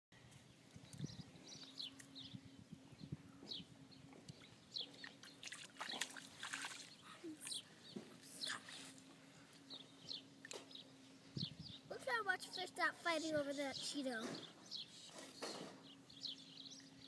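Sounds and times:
small birds chirping: 0:00.2 - 0:17.0.

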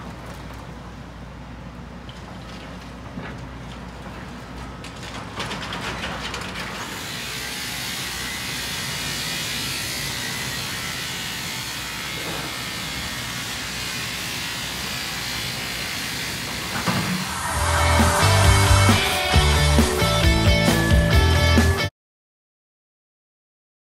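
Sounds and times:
machinery hissing rush: 0:13.7 - 0:20.9
low engine drone: 0:16.9 - 0:20.9.

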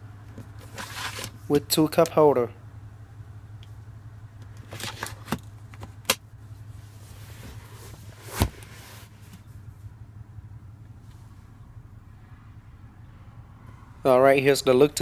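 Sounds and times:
car engine humming: 0:00.0 - 0:15.0
armrest folding thud: 0:07.4 - 0:09.4.

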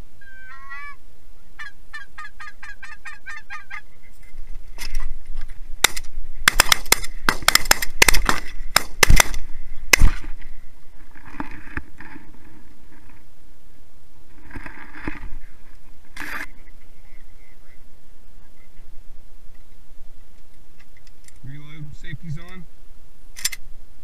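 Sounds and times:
shotgun shots: 0:05.8 - 0:10.3.

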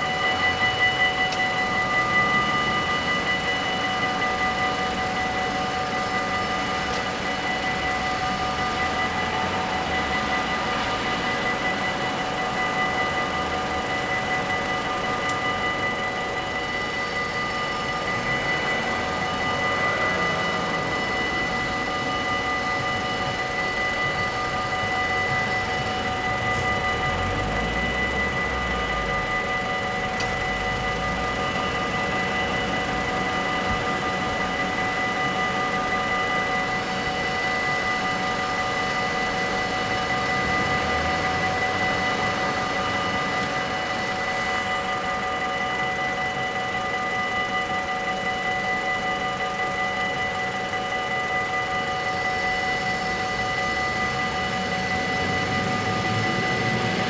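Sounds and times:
level crossing warning bells ringing: 0:00.0 - 0:57.0.

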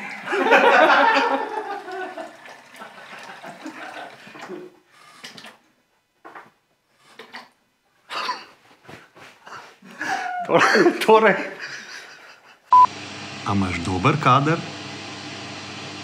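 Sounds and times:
tap water running into sink: 0:01.7 - 0:04.6.

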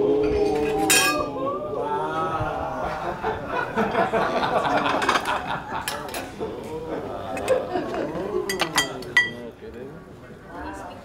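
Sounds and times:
people talking: 0:00.0 - 0:11.0
people chuckling: 0:01.9 - 0:08.5.

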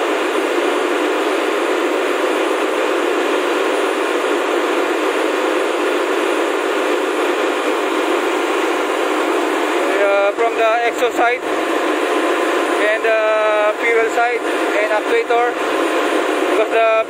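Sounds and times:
engine room machinery hum: 0:00.0 - 0:17.0.

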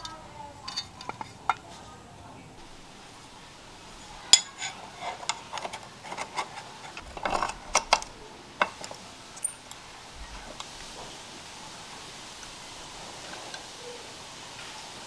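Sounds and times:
metal clinks and taps: 0:08.9 - 0:10.5.

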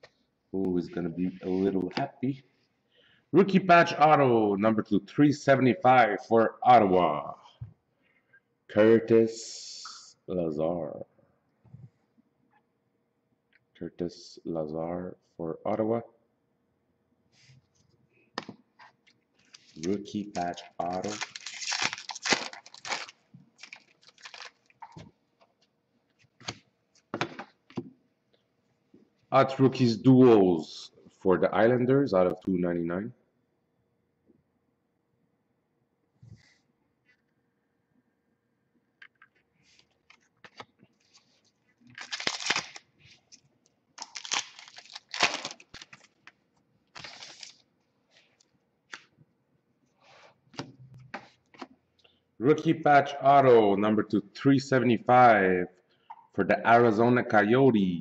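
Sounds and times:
wrappers tearing and crinkling: 0:19.4 - 0:24.8, 0:41.1 - 0:43.4, 0:44.0 - 0:46.3, 0:46.9 - 0:47.6.

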